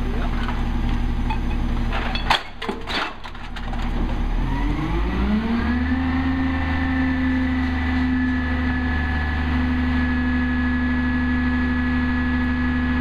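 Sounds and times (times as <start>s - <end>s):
diesel truck engine revving: 3.8s - 13.0s.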